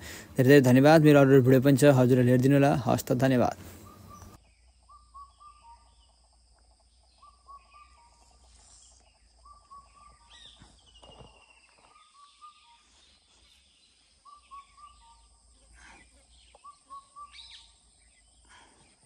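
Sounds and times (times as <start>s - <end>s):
high insect buzz: 4.4s - 18.5s.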